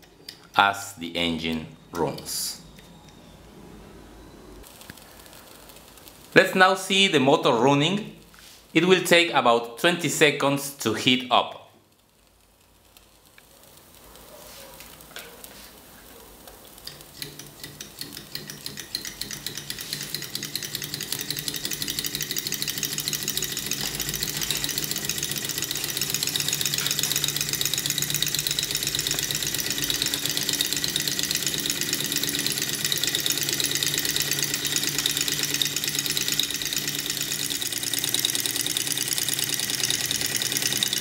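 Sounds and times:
model engine mechanical ticking: 16.8 - 41.0.

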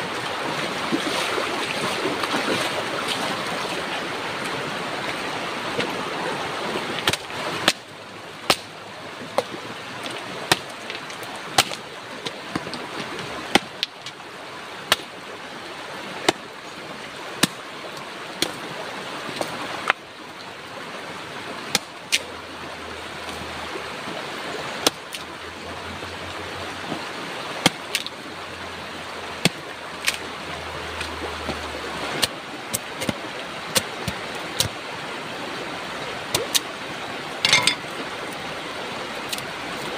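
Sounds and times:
shallow river rushing over rocks: 0.0 - 39.9
machete chopping wooden sticks: 7.0 - 7.8, 8.5 - 8.7.

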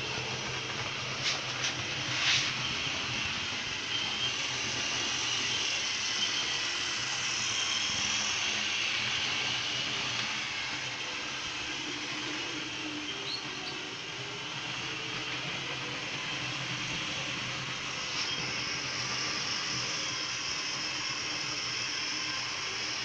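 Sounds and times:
model train motor whirring: 0.0 - 23.0.

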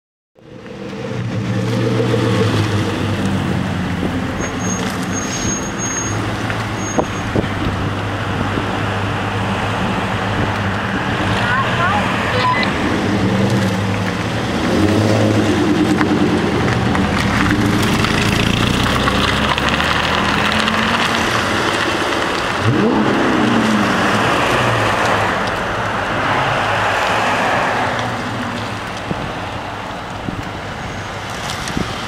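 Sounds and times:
car engines pulling away: 0.4 - 32.0
engine rising rev: 11.0 - 28.4.

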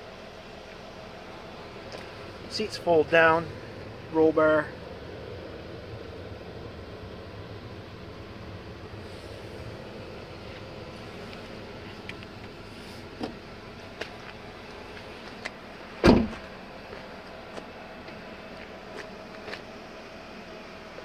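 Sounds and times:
car rear gate slamming: 16.0 - 16.5.

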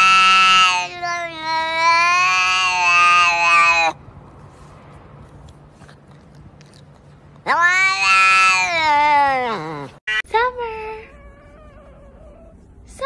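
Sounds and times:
cat yowling: 0.0 - 4.0, 7.4 - 12.6.

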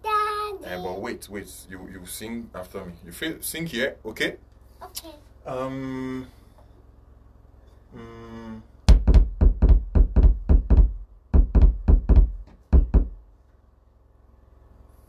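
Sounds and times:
thumps on microphone: 8.9 - 13.2.

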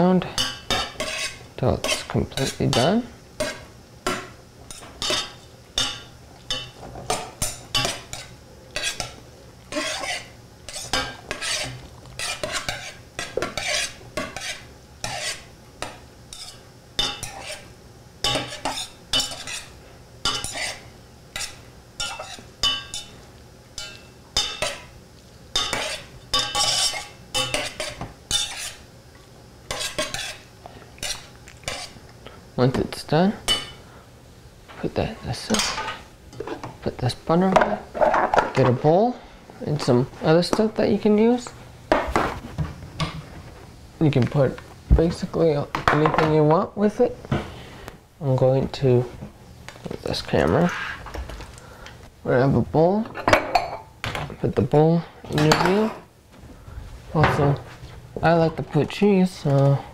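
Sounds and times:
utensil scraping steel saucepan: 0.4 - 3.6, 7.4 - 9.1, 9.7 - 15.5, 16.3 - 19.7, 20.3 - 23.1, 25.6 - 28.8, 29.7 - 32.0.

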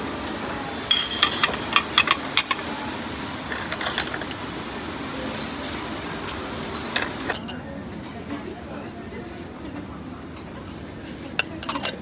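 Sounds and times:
steady background noise: 0.0 - 12.0
ceramic plates clinking: 0.8 - 4.4, 6.6 - 7.6, 11.4 - 12.0.

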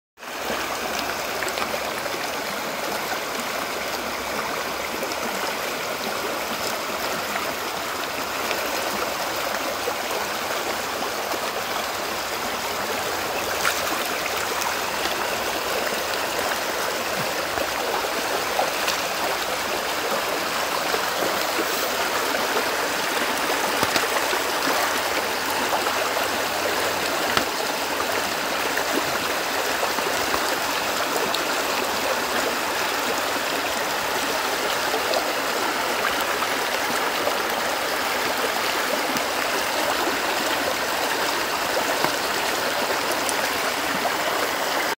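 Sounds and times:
stream rushing over rocks: 0.2 - 44.9
water splashes: 6.2 - 44.9.

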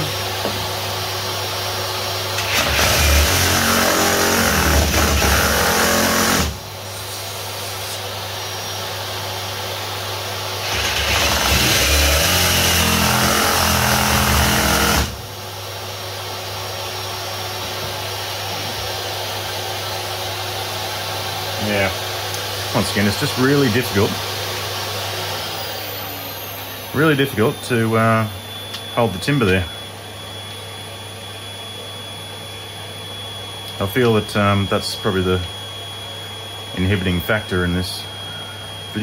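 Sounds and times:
reciprocating saw cutting wood: 2.3 - 8.1, 10.6 - 15.2.

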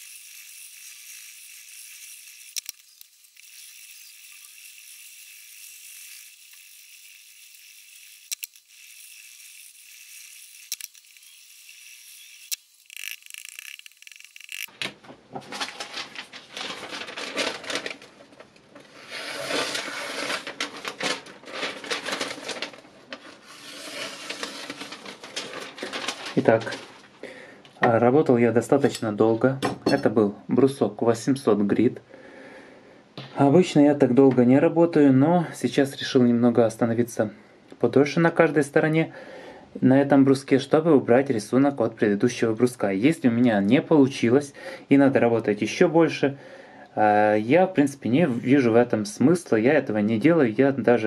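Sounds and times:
sharp clicks: 12.2 - 14.7.

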